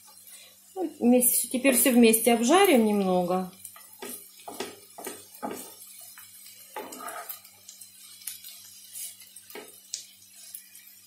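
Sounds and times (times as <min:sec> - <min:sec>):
faint frying sizzle: 0:00.0 - 0:11.0
wooden spatula scraping a pan: 0:03.8 - 0:07.5.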